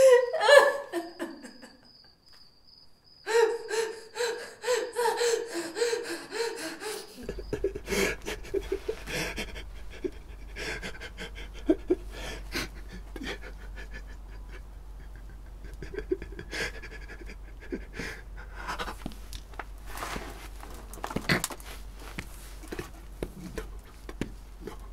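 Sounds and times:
man breathing hard: 3.3 - 19.1.

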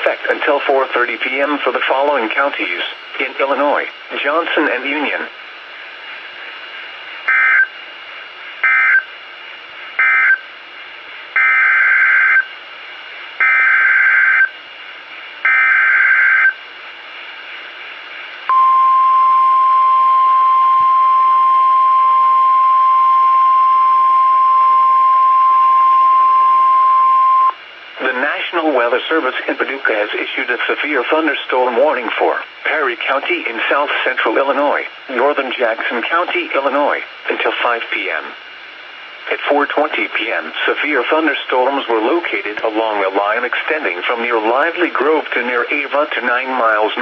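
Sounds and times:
steady warning alarm tone: 7.3 - 7.8, 8.6 - 9.1, 10.0 - 10.5, 11.4 - 12.5, 13.4 - 14.6, 15.4 - 16.6, 18.5 - 27.6.

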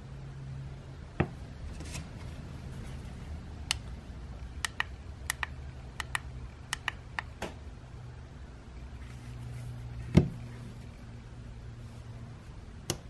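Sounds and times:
low steady hum: 0.0 - 13.0
remote buttons clicking: 4.6 - 7.4.

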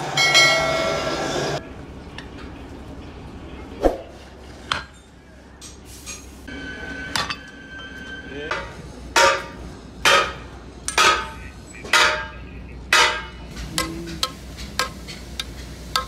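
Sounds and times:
hammer clanging on iron: 8.5 - 15.2.

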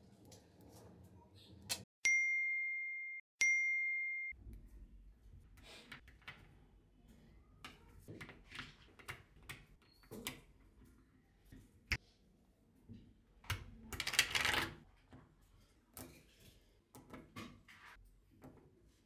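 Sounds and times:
ding tones: 2.0 - 4.4.

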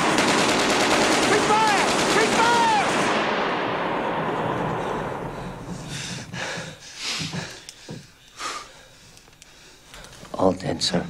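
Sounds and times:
heavy machine-gun fire echo: 0.0 - 5.2.

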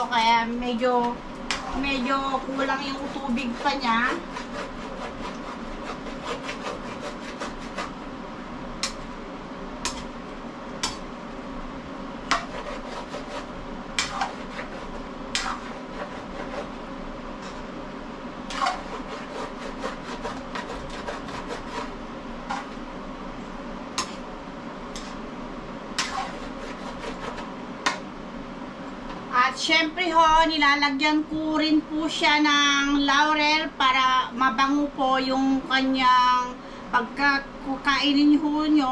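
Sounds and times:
steady low hum: 0.0 - 38.9
spoon scraping against a wok: 12.3 - 16.8, 18.5 - 22.8, 24.9 - 25.2, 26.0 - 28.0.

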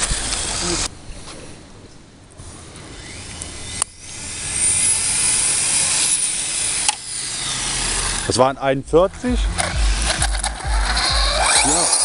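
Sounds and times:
toy car motor whine: 0.0 - 0.9, 2.9 - 8.3, 9.6 - 12.0.

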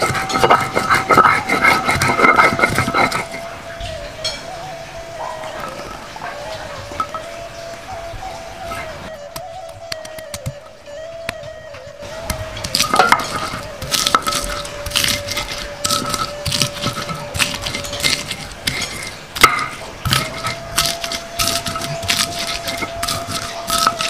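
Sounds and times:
stone pestle grinding on stone: 0.0 - 3.6, 12.1 - 24.0
bulbs squashing: 12.2 - 24.0.

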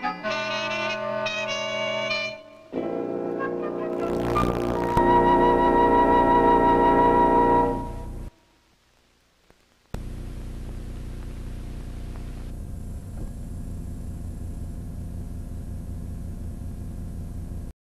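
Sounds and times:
closing music: 0.0 - 8.3
steady hum with hiss: 3.9 - 17.7.

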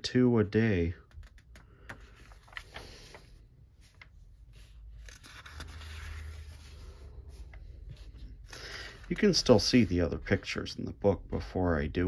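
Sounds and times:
paper page rustling: 1.2 - 10.5.

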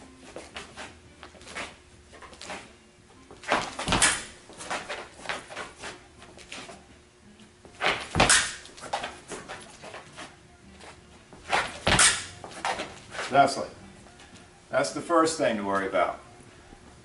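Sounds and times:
light steps and shuffles: 0.0 - 14.5
heavy foot stamps: 0.3 - 6.8, 7.6 - 13.5.

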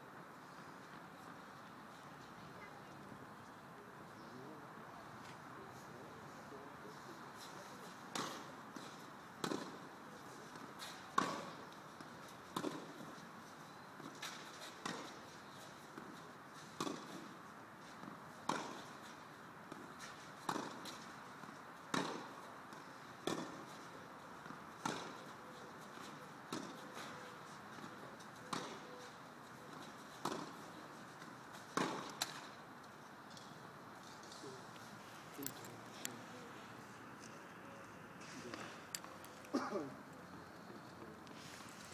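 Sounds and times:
tennis rackets striking ball: 8.1 - 9.8, 10.5 - 13.0, 14.0 - 15.3, 16.8 - 17.3, 18.0 - 19.1, 19.7 - 25.3, 25.9 - 27.1, 27.7 - 28.8, 29.7 - 32.6.

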